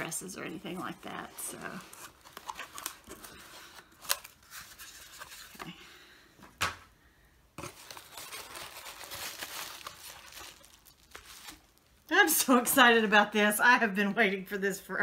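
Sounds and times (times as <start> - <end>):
packing paper rustling: 0.6 - 5.7, 7.6 - 12.1.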